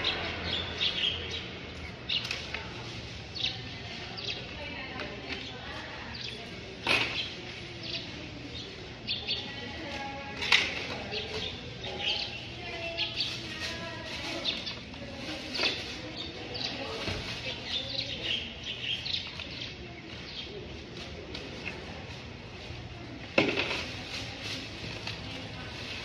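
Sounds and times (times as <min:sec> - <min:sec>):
small birds chirping: 0:00.0 - 0:22.8
faint voices: 0:00.0 - 0:26.0.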